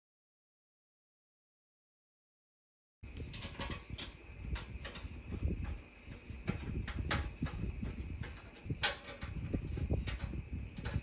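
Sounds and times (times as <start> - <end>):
metal burner parts clicking: 3.1 - 11.0.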